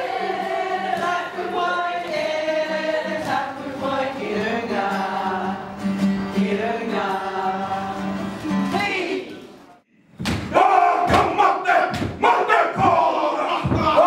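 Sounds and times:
group of voices singing: 0.0s - 9.5s.

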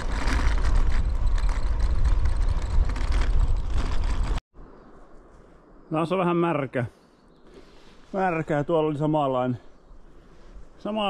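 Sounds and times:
bicycle tyres on gravel: 0.0s - 4.4s
wind buffeting microphone: 0.0s - 4.4s.

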